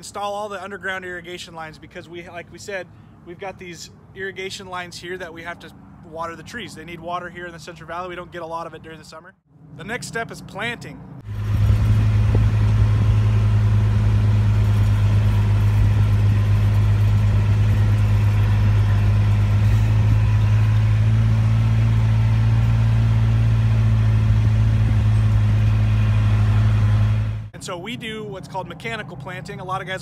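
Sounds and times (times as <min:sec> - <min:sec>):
tractor engine running: 0:11.2 - 0:27.6.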